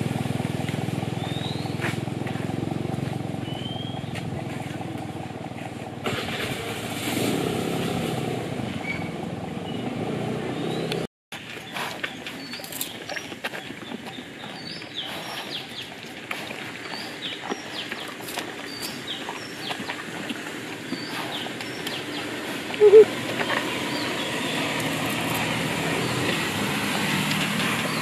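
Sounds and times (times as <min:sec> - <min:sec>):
engine-like hum: 0:00.0 - 0:28.0
birds chirping falling calls: 0:11.6 - 0:16.0, 0:16.6 - 0:26.5.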